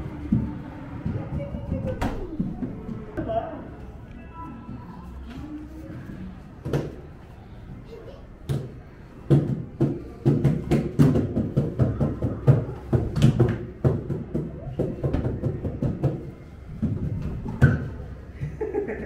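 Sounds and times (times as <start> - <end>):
hands and feet tapping floor discs: 8.4 - 18.8.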